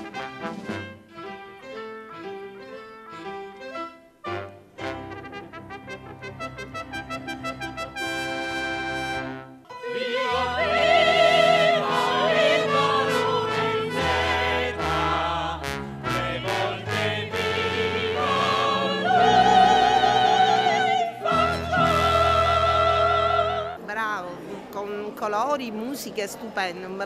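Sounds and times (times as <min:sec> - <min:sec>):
orchestra playing: 0:00.0 - 0:23.8
operatic voices singing: 0:09.7 - 0:23.9.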